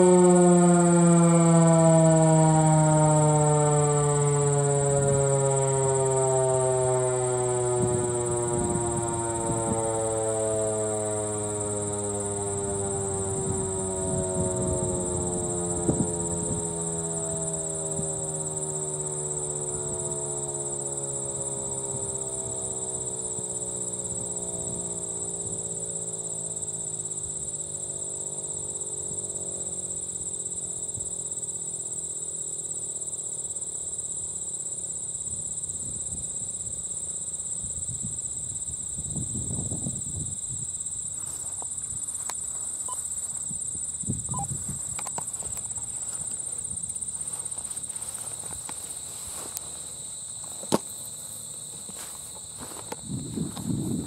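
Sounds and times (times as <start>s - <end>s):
mechanical siren winding down: 0.0s - 30.2s, 42.2s - 43.4s, 44.0s - 49.7s
insects trilling: 0.0s - 54.0s.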